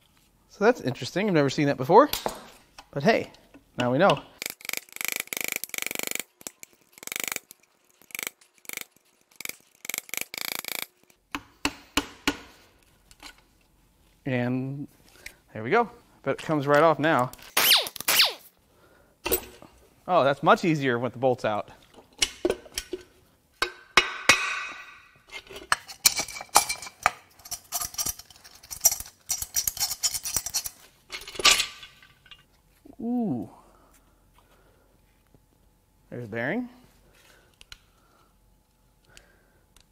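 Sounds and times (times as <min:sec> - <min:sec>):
ratcheting wrench clicking: 0:04.4 - 0:11.1.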